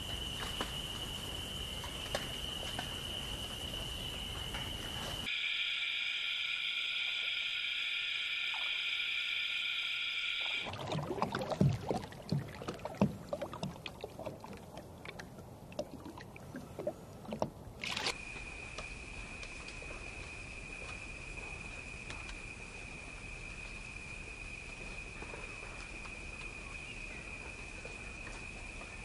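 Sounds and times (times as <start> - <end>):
high-pitched insect trill: 0.0 - 10.7, 18.2 - 29.0
water splashing and lapping: 10.5 - 18.2.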